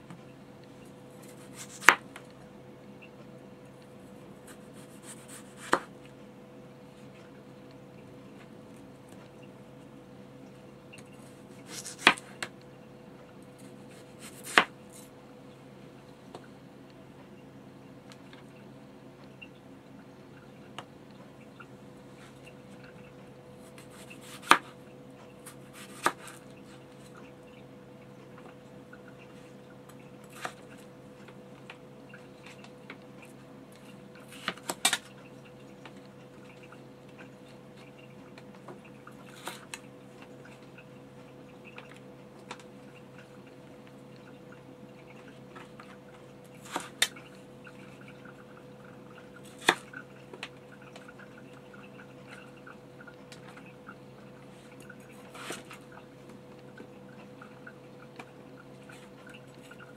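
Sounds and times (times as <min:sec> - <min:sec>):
knife slicing potatoes: 0:01.2 - 0:02.0, 0:04.5 - 0:05.9, 0:11.6 - 0:12.3, 0:13.9 - 0:15.0, 0:23.8 - 0:24.7, 0:25.5 - 0:26.4.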